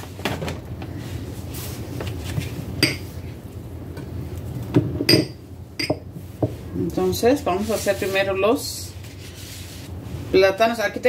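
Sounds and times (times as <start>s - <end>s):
glass bowls clinking on counter: 2.8s - 3.1s, 5.0s - 6.1s.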